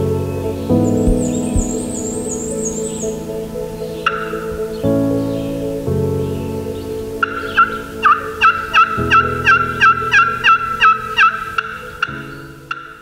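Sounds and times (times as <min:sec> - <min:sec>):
soft background music chords: 0:00.0 - 0:13.0
turkey yelps: 0:07.2 - 0:12.1.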